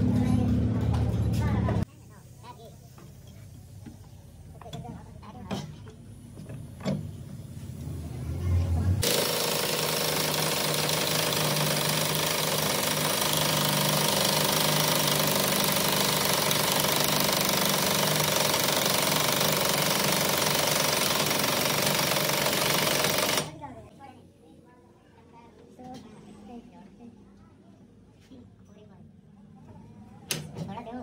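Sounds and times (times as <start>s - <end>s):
pneumatic impact wrench hammering: 9.0s - 23.5s.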